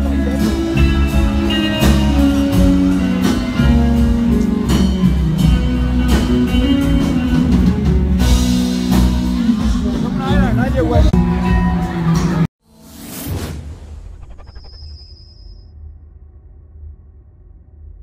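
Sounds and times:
loud band music: 0:00.0 - 0:12.5.

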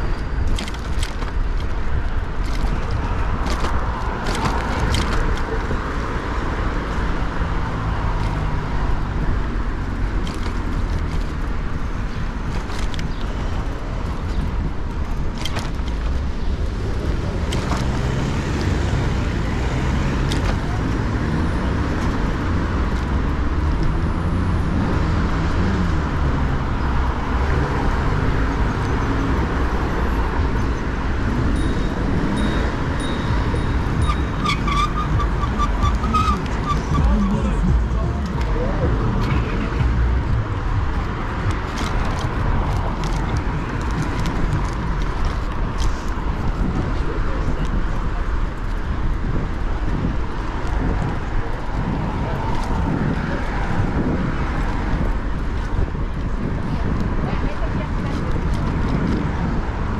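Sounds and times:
passing traffic: 0:00.0 - 0:59.9
wind and road rumble: 0:00.0 - 0:59.9
bicycle clicks and rattles: 0:00.1 - 0:06.2, 0:10.0 - 0:19.4, 0:20.2 - 0:21.0, 0:41.0 - 0:46.9, 0:58.0 - 0:59.6.

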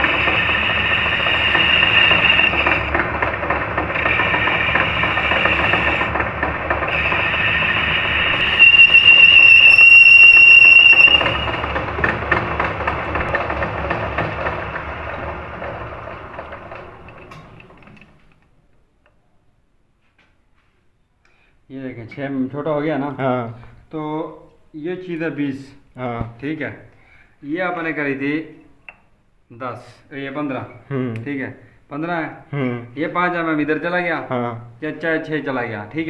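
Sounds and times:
piercing high squeal: 0:00.0 - 0:13.6
lathe cutting with chattering whine: 0:00.0 - 0:17.7.

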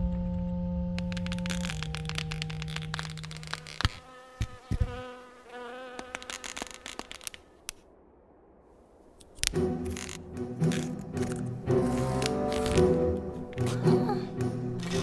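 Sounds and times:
sharp clicks: 0:01.0 - 0:04.9, 0:06.0 - 0:07.9, 0:09.2 - 0:13.8
insect-like buzzing: 0:01.0 - 0:07.8, 0:09.2 - 0:15.0.

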